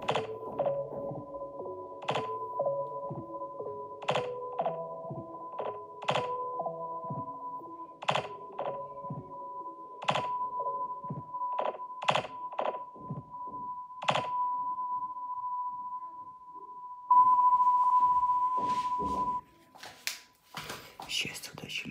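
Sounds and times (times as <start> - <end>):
steady high tone: 14.6 - 19.5.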